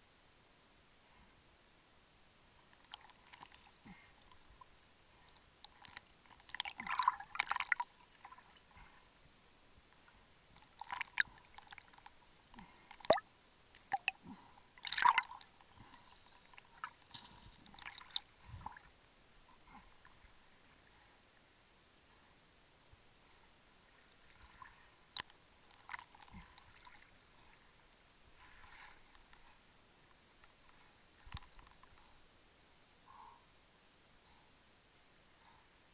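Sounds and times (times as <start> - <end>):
underwater bubbling: 5.7 - 8.6, 12.7 - 13.2, 13.8 - 18.9.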